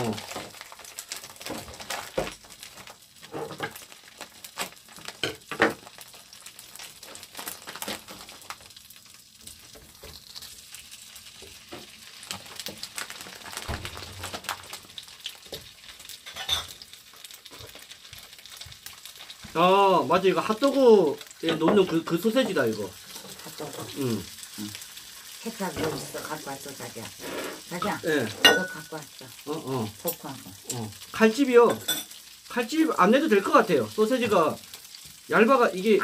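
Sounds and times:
sausages knocking in a pan: 0.0 - 4.0, 4.9 - 6.0, 11.4 - 19.6, 20.7 - 23.7
sausages sizzling in a frying pan: 0.0 - 36.0.

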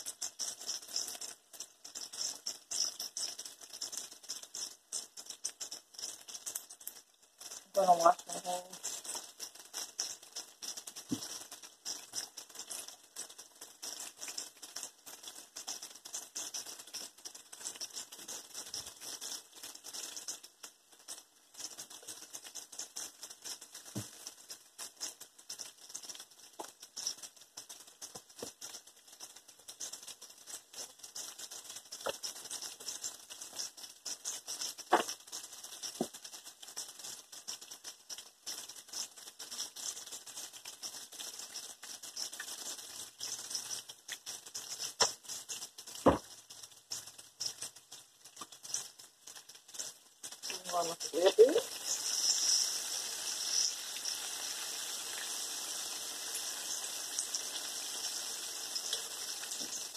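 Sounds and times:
bacon deep-frying in oil: 0.0 - 59.9
oil popping: 34.4 - 36.2.

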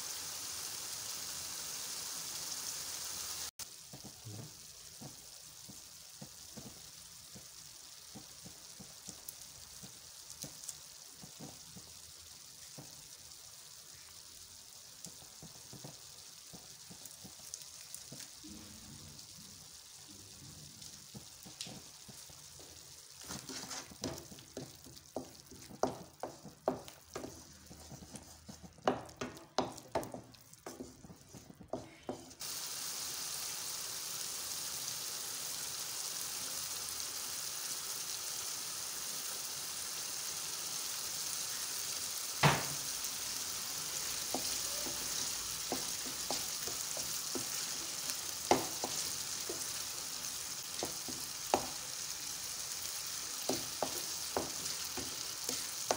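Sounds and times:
sauce sizzling: 0.0 - 55.9
wooden spoon scraping a pan: 23.2 - 32.4, 43.8 - 50.1, 50.7 - 51.9, 53.4 - 55.9.

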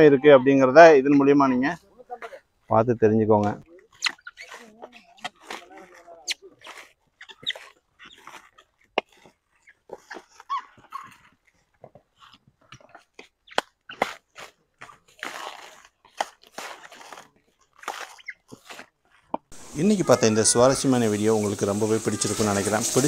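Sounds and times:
coconut husk cracking: 3.4 - 19.6
husk fibre tearing: 3.7 - 19.6.

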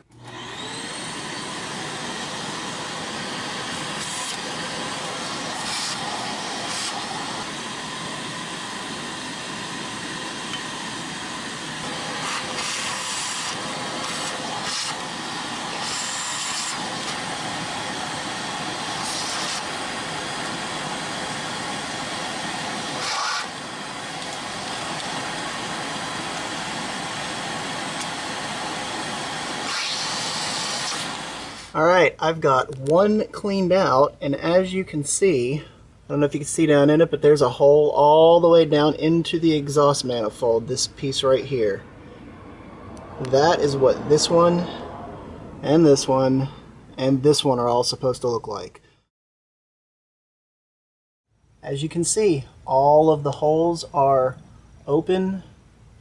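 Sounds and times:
vacuum cleaner running: 0.0 - 31.8, 42.1 - 46.2.

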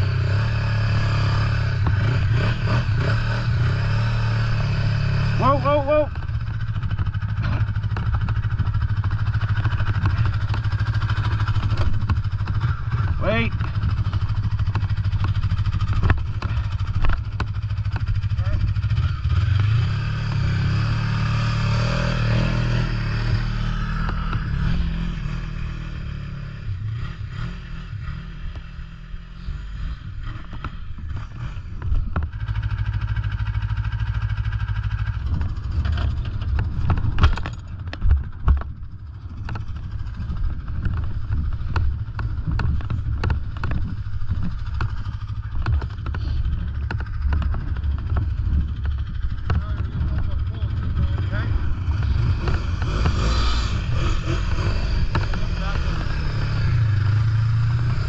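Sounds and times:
snowmobile engine running: 0.0 - 28.4, 29.3 - 58.0
sharp knocks and clatter: 6.7 - 18.3, 35.2 - 50.3, 54.6 - 55.8.

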